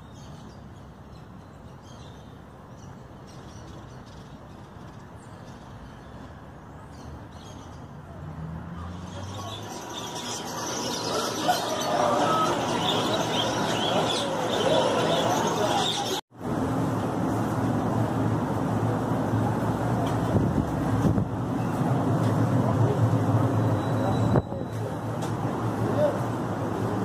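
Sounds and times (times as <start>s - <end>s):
canaries and finches singing: 0.0s - 16.2s
low traffic rumble: 0.0s - 27.0s.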